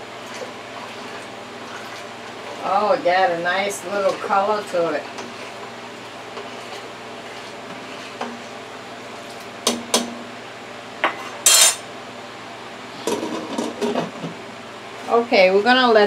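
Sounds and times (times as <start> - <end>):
ladle stirring in pot: 0.1 - 10.0.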